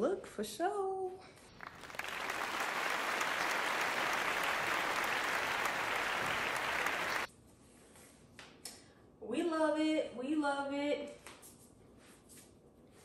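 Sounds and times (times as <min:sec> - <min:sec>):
crowd applause: 0:01.6 - 0:07.3.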